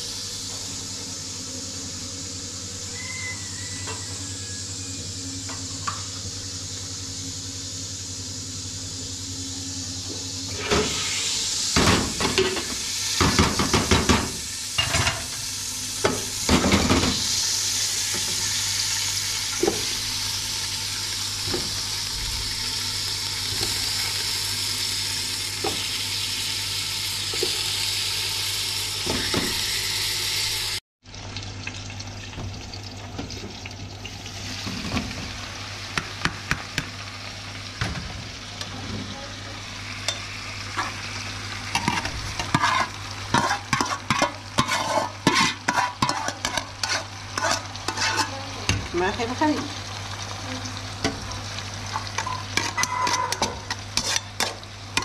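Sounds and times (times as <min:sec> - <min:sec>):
food sizzling in a pan: 0:00.0 - 0:55.0
utensil scraping a pan: 0:41.8 - 0:48.4, 0:52.2 - 0:54.6.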